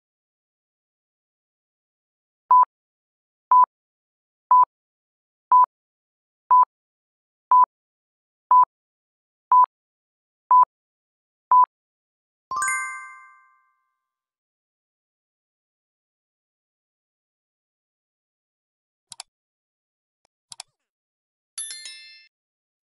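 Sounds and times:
bell-like ding: 12.5 - 13.8.

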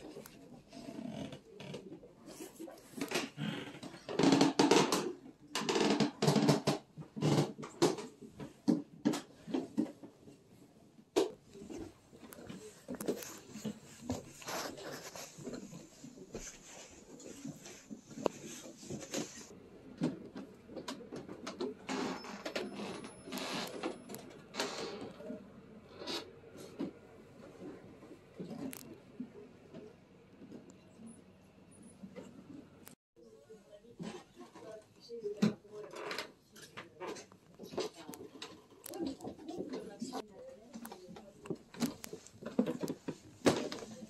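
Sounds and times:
floorboard creaks: 3.0 - 7.6
footsteps on wooden floorboards: 11.6 - 19.5.

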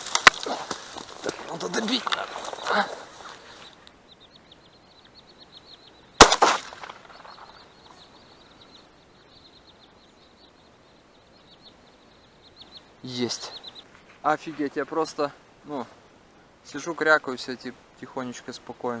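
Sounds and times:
shotgun shot with echo: 6.2 - 7.5.

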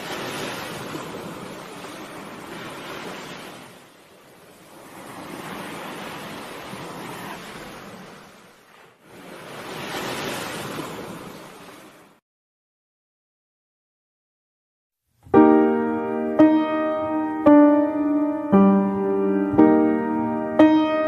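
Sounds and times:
surf on pebble beach: 0.0 - 12.2.

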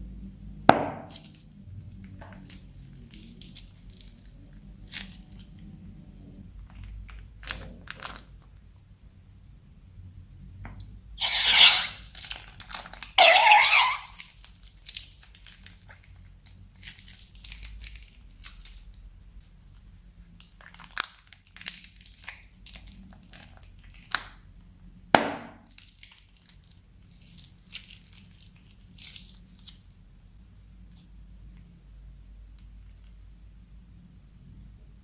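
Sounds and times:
plastic bags crinkling: 2.3 - 5.6, 6.6 - 8.5, 11.2 - 19.1, 20.4 - 24.2, 25.6 - 30.0.

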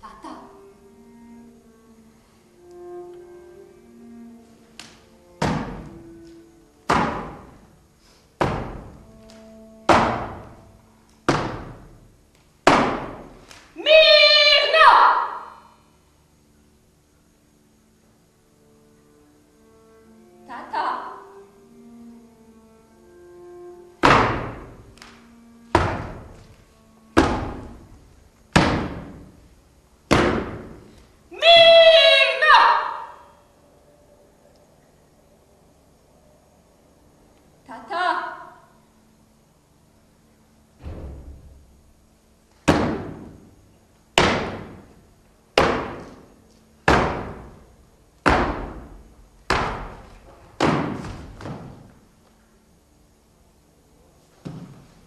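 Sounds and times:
soft sustained musical tones: 0.0 - 11.3, 15.6 - 28.6, 30.8 - 40.8
heavy echoing slams: 27.2 - 29.4, 40.8 - 41.8, 44.2 - 44.9, 48.2 - 51.9
heavy reverberant thuds: 40.8 - 41.9.

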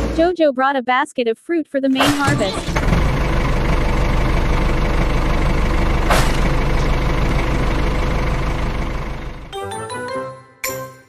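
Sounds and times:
tractor engine rumbling: 2.0 - 9.6.

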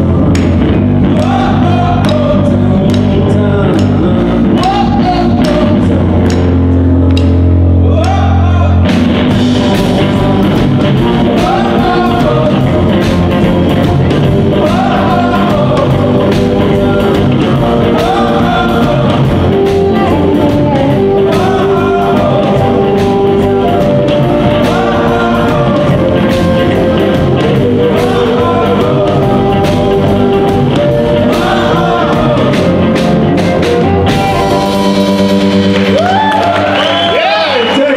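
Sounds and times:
blues-rock band playing: 0.0 - 37.4.

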